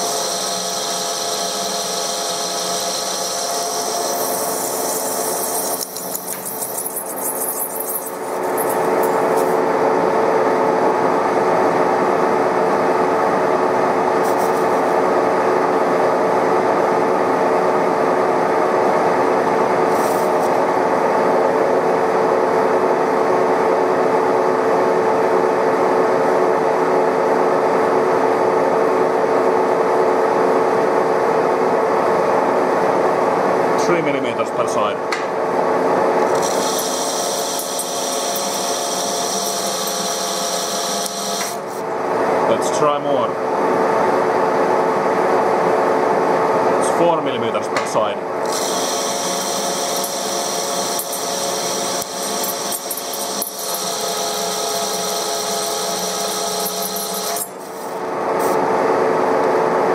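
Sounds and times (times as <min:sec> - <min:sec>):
lathe motor hum: 0:00.0 - 0:09.6, 0:36.3 - 0:41.8
metal lathe cutting: 0:00.0 - 0:09.6, 0:36.3 - 0:41.6, 0:48.4 - 0:57.8.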